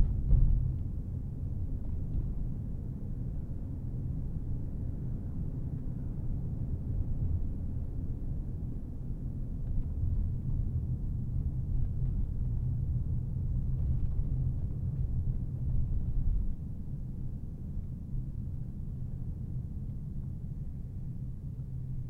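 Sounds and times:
car engine and tyre rumble: 0:07.0 - 0:22.0.

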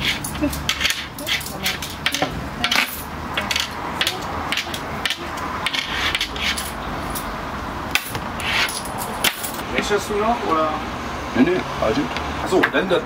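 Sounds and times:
knocks and clicks of handled items: 0:00.0 - 0:07.3, 0:07.9 - 0:09.6
steady background hum: 0:00.0 - 0:12.0.

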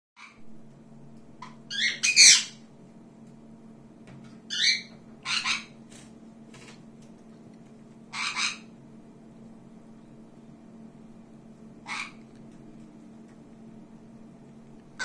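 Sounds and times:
pet birds calling: 0:01.4 - 0:02.6, 0:04.5 - 0:05.8, 0:08.1 - 0:08.8, 0:11.8 - 0:12.3.

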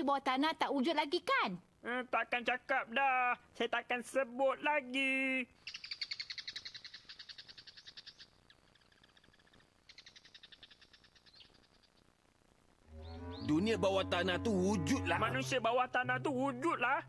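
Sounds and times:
animal chirping trill: 0:05.6 - 0:12.0.

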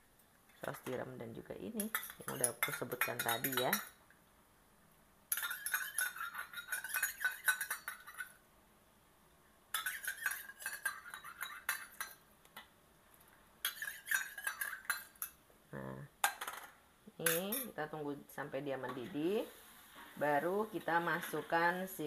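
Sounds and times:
spoon clinking against bowl: 0:01.8 - 0:04.0, 0:05.3 - 0:08.3, 0:09.7 - 0:12.2, 0:13.6 - 0:15.4.

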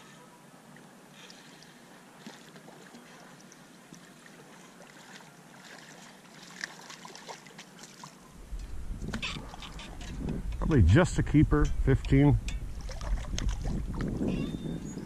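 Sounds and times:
fish splashing at water surface: 0:12.7 - 0:14.2.

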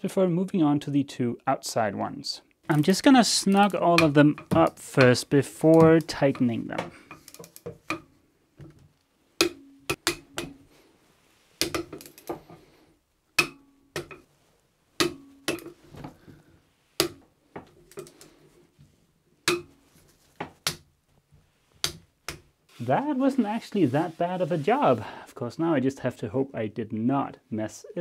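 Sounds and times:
socket wrench ratchet clicking: 0:07.2 - 0:07.7.

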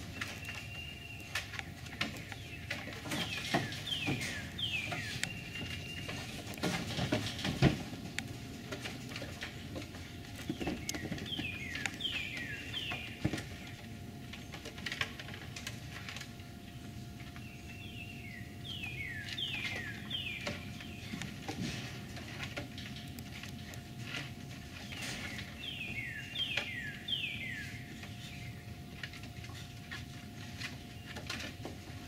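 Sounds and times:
songbird singing: 0:00.0 - 0:07.4, 0:09.6 - 0:14.6, 0:15.9 - 0:21.9, 0:23.0 - 0:32.0
knocks and scrapes on wood and mesh: 0:01.3 - 0:11.9, 0:20.4 - 0:25.6.

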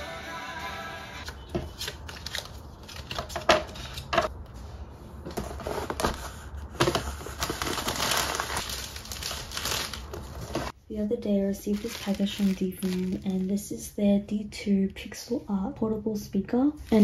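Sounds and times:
cardboard box rustling: 0:05.3 - 0:10.7.

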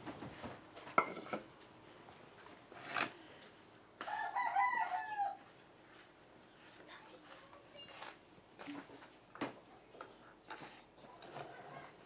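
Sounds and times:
rooster crowing: 0:04.0 - 0:05.4.

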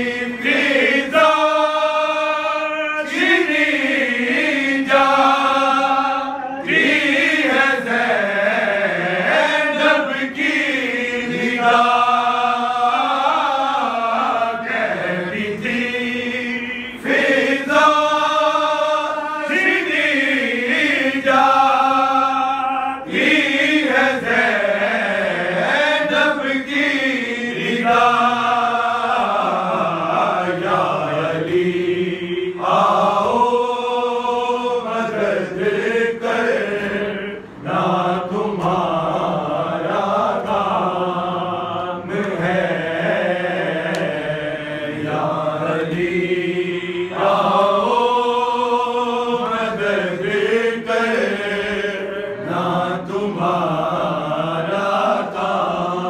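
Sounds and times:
person chanting a mourning lament: 0:00.0 - 0:56.0.

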